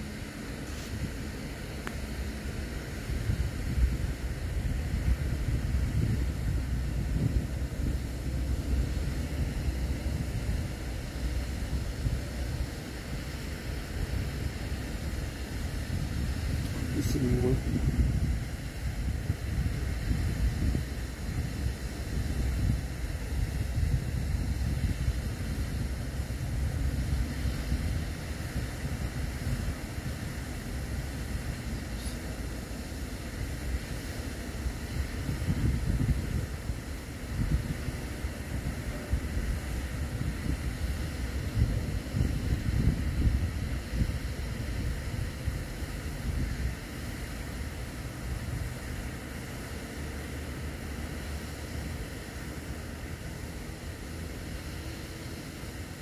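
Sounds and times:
low rumble and hiss: 0.0s - 56.0s
wind buffeting microphone: 2.3s - 32.0s, 34.5s - 47.6s.

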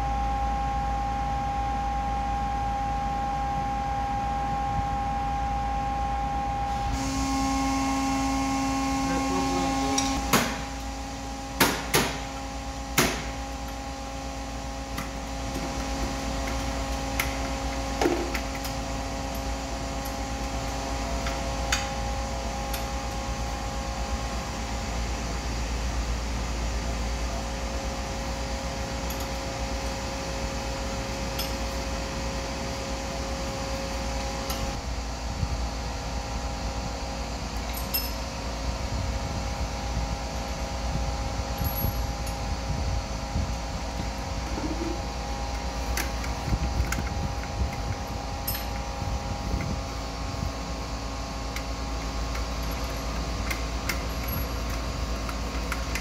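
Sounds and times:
steady machine hum: 0.0s - 56.0s
metallic clinks of tools: 37.7s - 38.2s.

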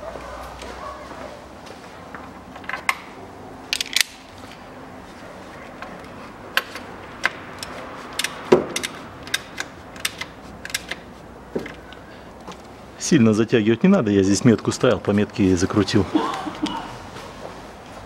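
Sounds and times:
hand tool clicking on metal fitting: 6.6s - 11.0s.

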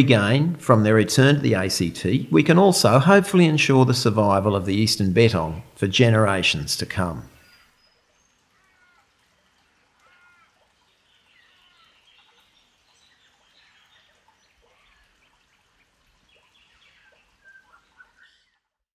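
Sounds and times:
soft background hiss: 0.0s - 18.5s
birds chirping: 0.0s - 18.8s.

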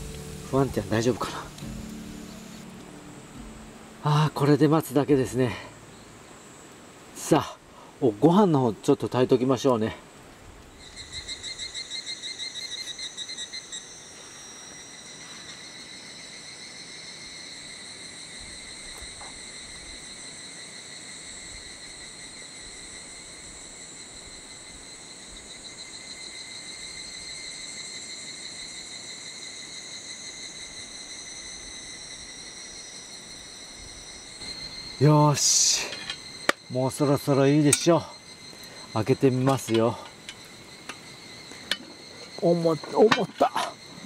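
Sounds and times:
insects trilling: 0.0s - 44.0s.

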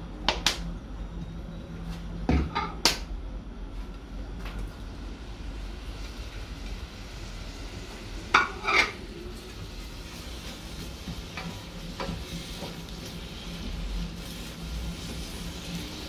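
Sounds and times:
onion sizzling in frying pan: 5.5s - 16.0s
spatula scraping clatter: 8.4s - 9.0s.

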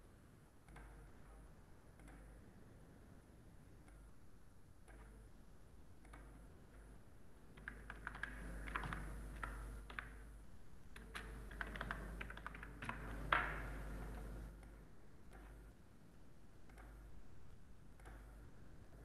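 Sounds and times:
computer keyboard typing: 7.6s - 10.2s, 10.9s - 14.7s.

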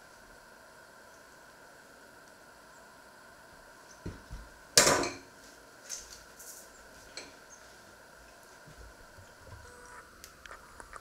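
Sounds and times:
tableware clattering on worktop: 4.8s - 5.3s.

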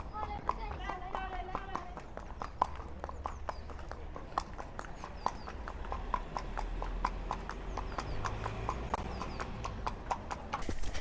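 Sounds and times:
hooves clip-clopping on tarmac: 0.0s - 11.0s.

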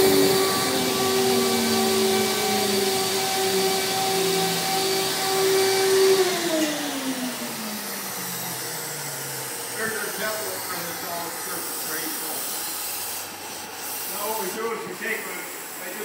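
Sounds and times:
router spindle whine: 0.0s - 16.0s
rushing air hiss: 9.8s - 16.0s.

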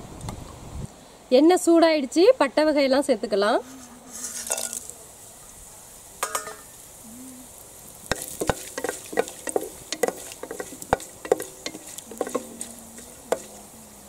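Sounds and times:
spices sizzling in oil: 1.6s - 14.0s
metal clink: 6.2s - 6.7s
metal spatula scraping pot: 8.1s - 13.6s.

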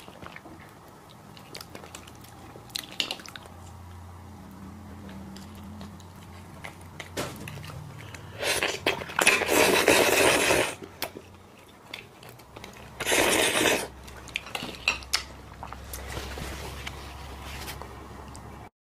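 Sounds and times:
sucking at the mouth: 8.2s - 10.8s, 13.0s - 13.9s.

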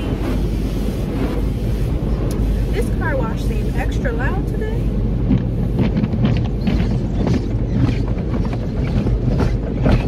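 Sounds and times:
spraying water: 0.0s - 7.2s
car wash machinery rumble: 0.0s - 10.0s.

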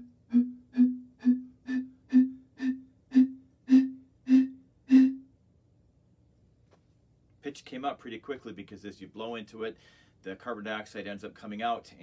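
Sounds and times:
blowing into bottle low tone: 0.0s - 5.3s.

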